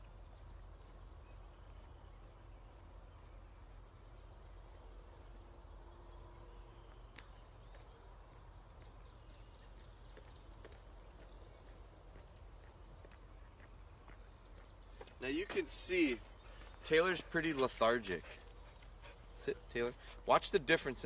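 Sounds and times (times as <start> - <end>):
faint high chirps and ticks: 0.0 - 15.3.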